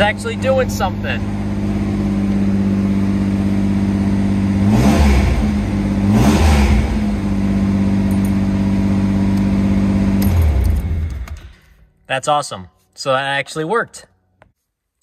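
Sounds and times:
car engine idling and revving: 0.0s - 11.8s.

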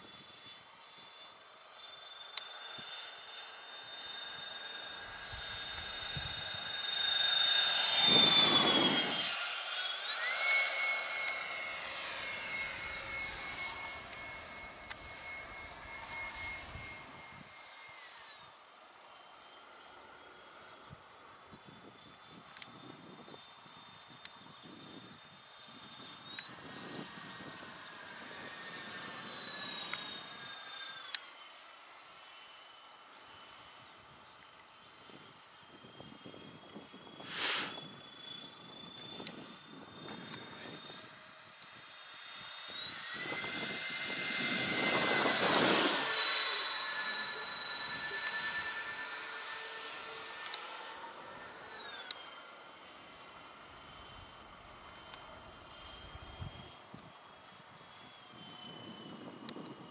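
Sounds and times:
model jet fans whining: 0.0s - 59.9s
sharp clicks: 50.4s - 50.7s.

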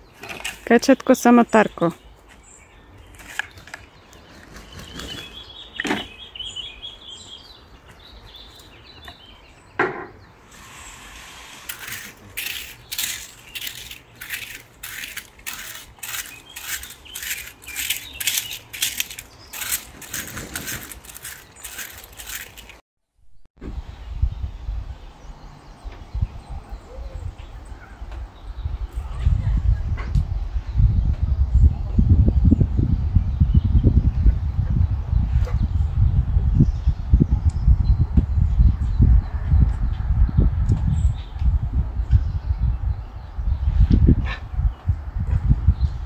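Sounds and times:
rake scraping soil: 10.4s - 22.8s
shovel scraping: 10.5s - 22.8s.

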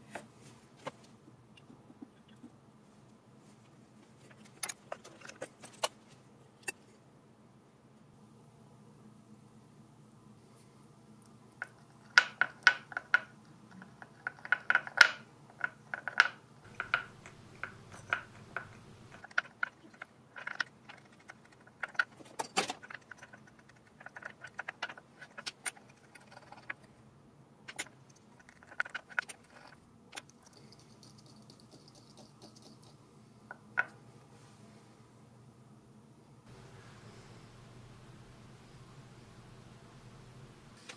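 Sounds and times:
whisk clicking against ceramic bowl: 14.2s - 19.4s, 30.6s - 33.0s.

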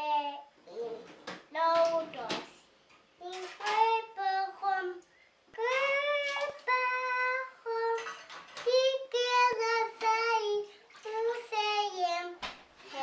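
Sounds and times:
girl singing in high voice: 0.0s - 0.8s, 3.2s - 5.0s, 5.6s - 13.0s.

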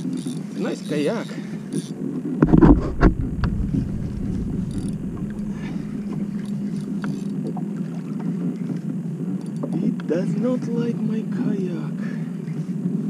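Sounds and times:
motorboat engine droning: 0.0s - 13.0s
loud thump and sharp knock: 2.4s - 6.2s.

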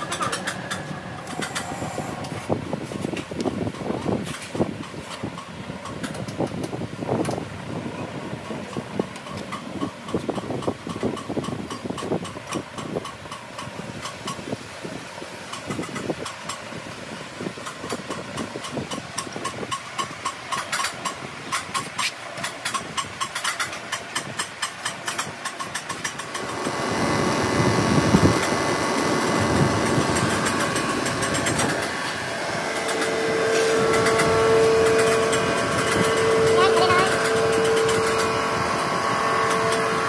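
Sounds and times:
steady whine: 0.0s - 3.1s, 26.2s - 40.0s
machine motor running: 26.3s - 40.0s.

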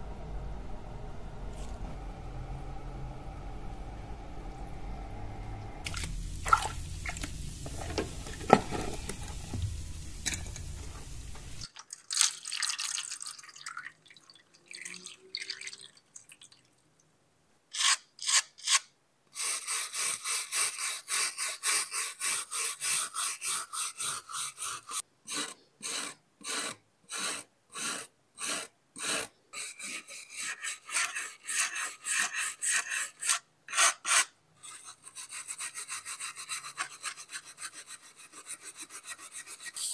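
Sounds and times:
steady hiss: 0.0s - 11.7s
rasping strokes on a knife blade: 19.4s - 39.9s.

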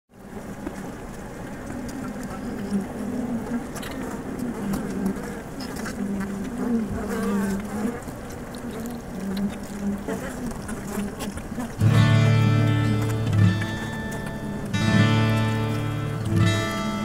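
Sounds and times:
flying insect buzzing: 2.6s - 13.9s.

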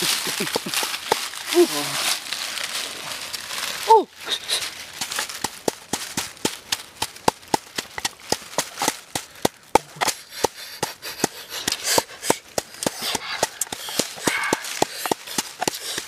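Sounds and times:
wooden pestle pounding in shell bowl: 4.9s - 16.0s.

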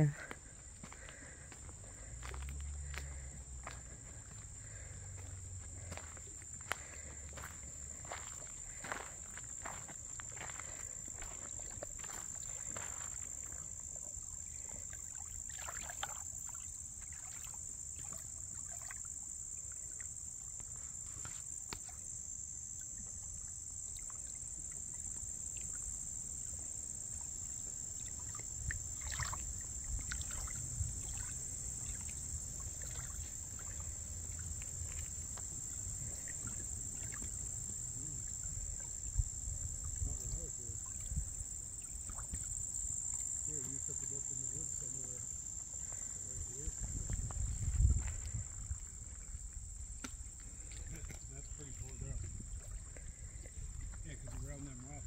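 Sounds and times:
insect chorus: 0.0s - 55.0s.

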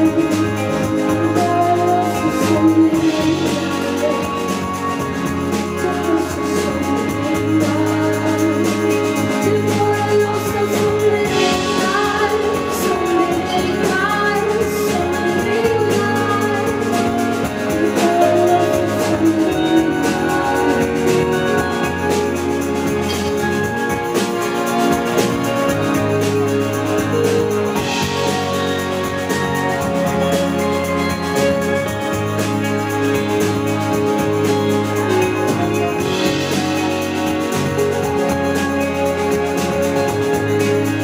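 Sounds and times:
woman singing into microphone: 0.0s - 23.9s
live pop band: 0.0s - 41.0s.

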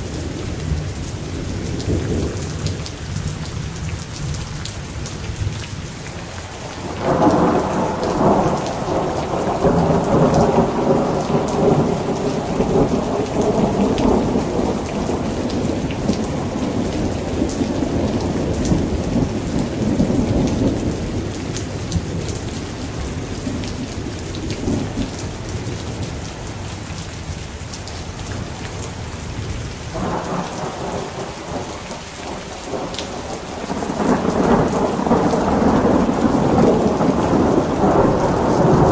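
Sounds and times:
steady rain falling: 0.0s - 38.9s
rolling thunder: 6.7s - 25.2s, 29.4s - 38.9s.

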